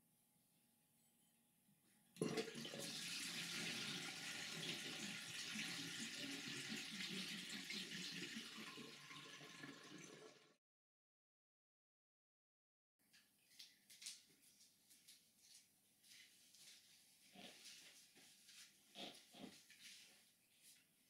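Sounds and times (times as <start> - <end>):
running water: 2.2 - 10.6.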